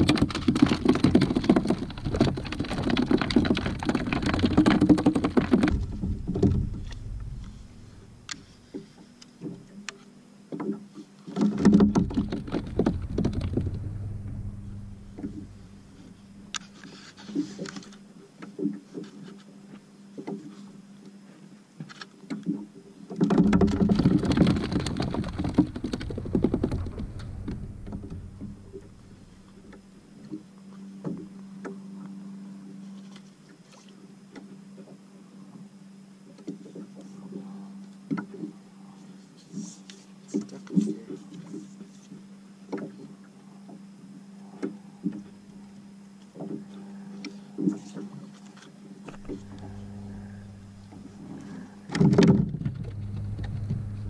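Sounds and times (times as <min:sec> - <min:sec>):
wind and water rushing: 0:00.0 - 0:08.6, 0:11.8 - 0:16.6, 0:23.6 - 0:30.0.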